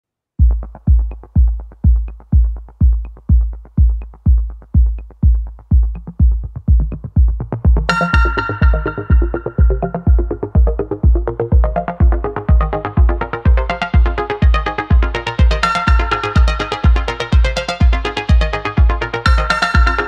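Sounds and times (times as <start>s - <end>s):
electronic music kick drum beat: 0.4s - 20.0s
bright synth chord: 7.9s - 10.5s.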